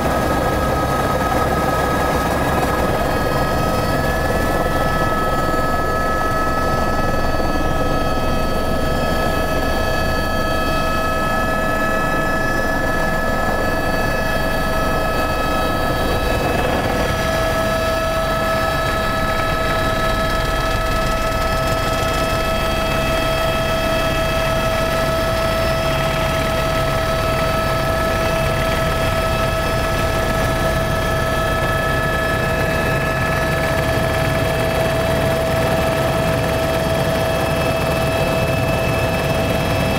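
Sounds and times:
high engine whine: 0.0s - 34.9s
helicopter engine and rotor noise: 0.0s - 39.9s.

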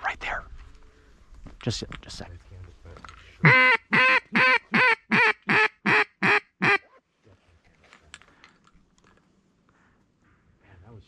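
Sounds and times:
duck call quacks: 3.4s - 6.9s.

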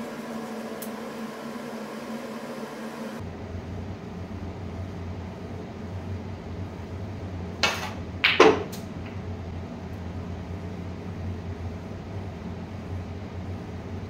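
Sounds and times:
steady low hum: 0.0s - 14.0s
snooker ball clack: 7.6s - 8.8s.

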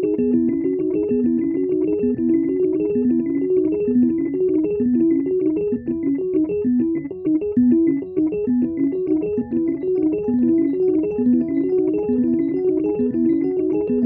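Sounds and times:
keyboard melody of short notes: 0.0s - 14.0s.

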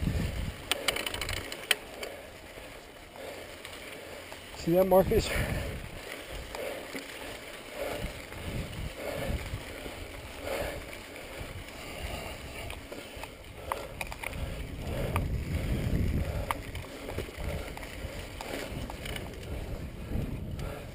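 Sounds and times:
wind rushing over microphone: 0.0s - 1.4s, 4.6s - 6.6s, 7.8s - 20.9s
bike clicking and rattling: 0.0s - 20.9s
bike tyres on dirt: 0.0s - 20.9s.

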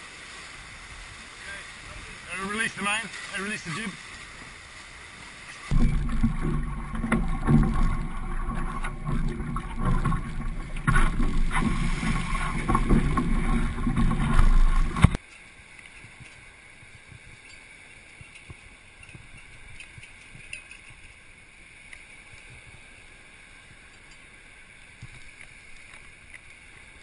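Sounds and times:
water rushing along hull: 0.0s - 27.0s.

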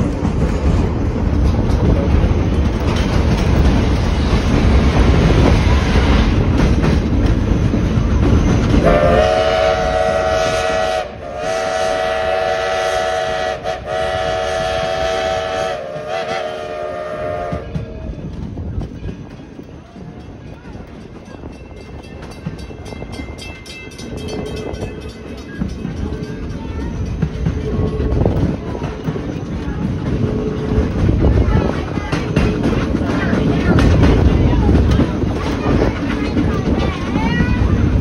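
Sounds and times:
steam locomotive running: 0.0s - 38.0s
steam whistle blasts: 8.8s - 17.7s.

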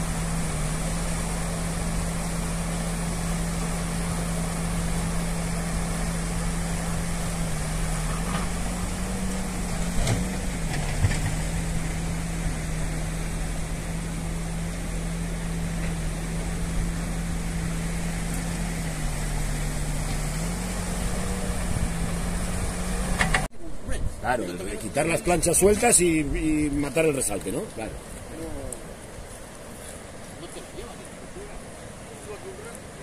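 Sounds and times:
diesel engine running: 0.0s - 23.5s
river rushing over bridge: 0.0s - 33.0s.

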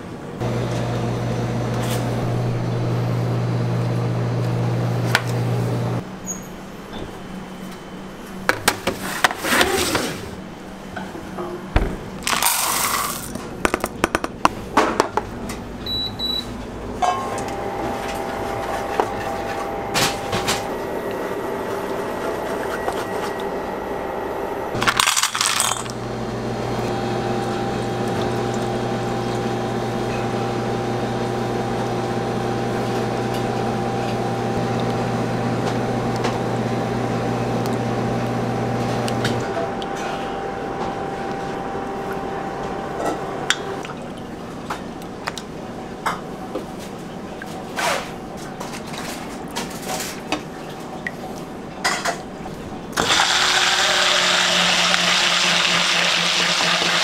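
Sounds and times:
electric whine of induction hob: 0.0s - 6.5s, 15.8s - 43.8s, 53.0s - 57.0s
kitchen machine hum: 0.0s - 57.0s
small hard pieces clattering on metal: 12.2s - 13.4s, 24.8s - 26.0s.

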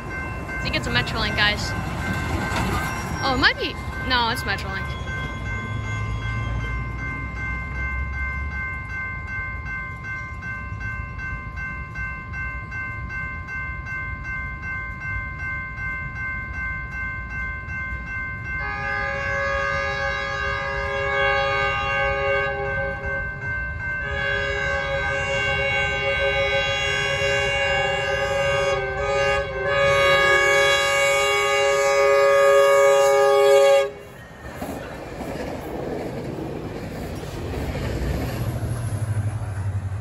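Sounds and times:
crossing warning bell ringing: 0.0s - 40.0s
train horn blast: 18.6s - 23.3s, 24.0s - 34.2s.

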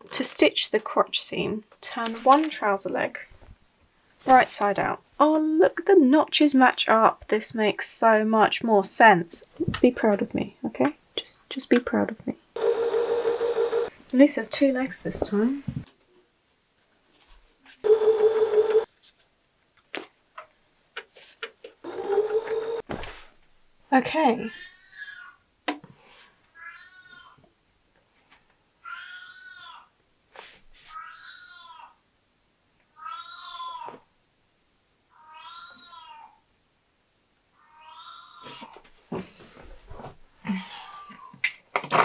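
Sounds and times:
sewing machine stitching: 17.9s - 18.9s, 21.8s - 22.8s.

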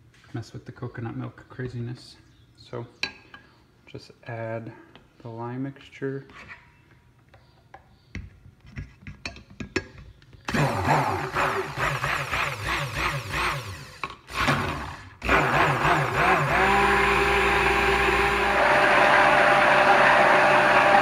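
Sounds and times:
stick blender motor running: 10.5s - 21.0s.

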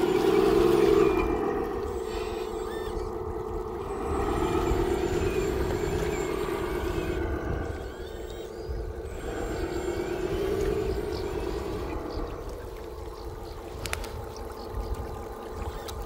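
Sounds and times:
water churning: 0.0s - 16.0s
toy truck motor whine: 3.9s - 12.0s.

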